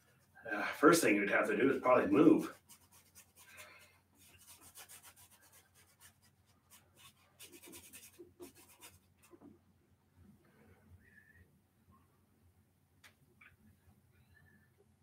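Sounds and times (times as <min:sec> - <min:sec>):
paintbrush strokes on canvas: 0:01.4 - 0:09.5.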